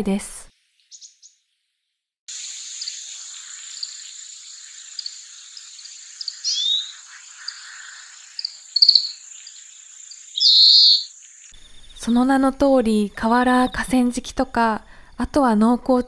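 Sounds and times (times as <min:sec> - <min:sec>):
finch chirping: 0:00.8 - 0:01.4, 0:02.4 - 0:12.2
steady high hiss: 0:02.3 - 0:12.2.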